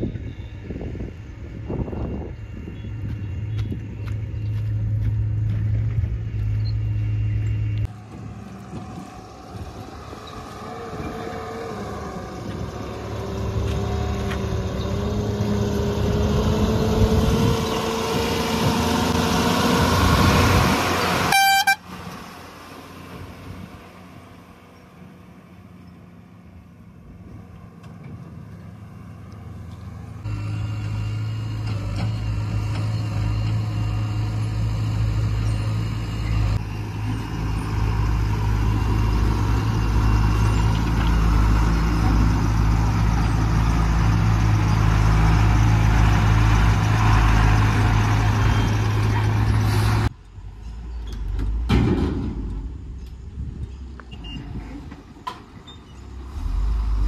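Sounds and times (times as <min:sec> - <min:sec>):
low engine hum: 0:00.0 - 0:57.0
truck diesel engine: 0:00.0 - 0:57.0
truck horn toot: 0:21.0 - 0:22.0.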